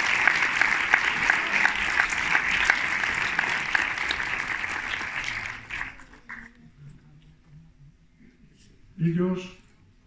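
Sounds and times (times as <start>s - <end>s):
audience applause: 0.0s - 6.5s.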